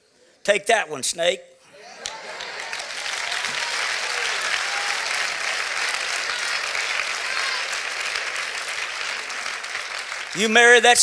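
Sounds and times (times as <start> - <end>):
voices calling out: 1.7 - 10.4
congregation applauding: 1.7 - 11.0.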